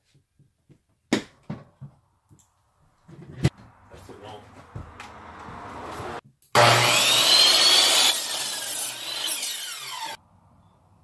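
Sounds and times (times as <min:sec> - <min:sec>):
saw cutting wood: 0:05.1 - 0:10.2
saw motor whine: 0:06.6 - 0:10.2.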